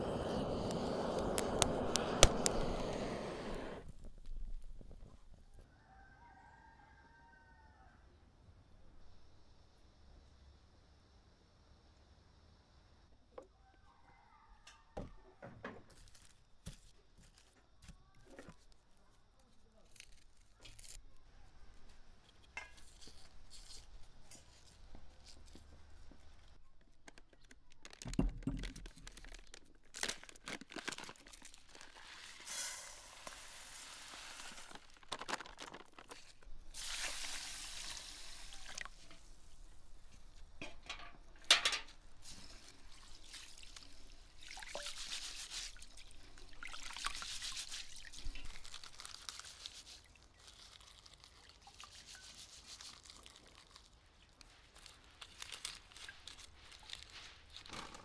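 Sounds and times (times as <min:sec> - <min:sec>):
onion skin crackling: 0:19.5 - 0:21.0, 0:28.8 - 0:40.6, 0:46.8 - 0:58.0
rice rinsed by hand: 0:30.9 - 0:39.5, 0:40.6 - 0:58.0
dry rice pouring into bowl: 0:31.7 - 0:36.2.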